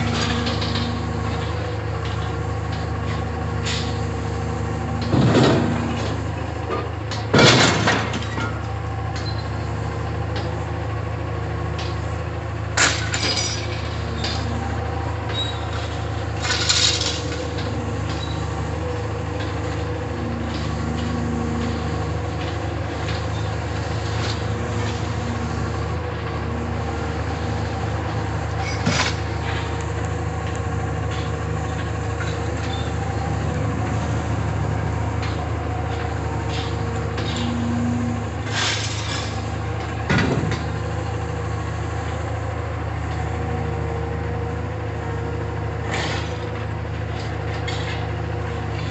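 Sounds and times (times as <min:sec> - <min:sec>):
diesel engine running: 0:00.0 - 0:48.9
scrap metal crashing: 0:35.2 - 0:40.6.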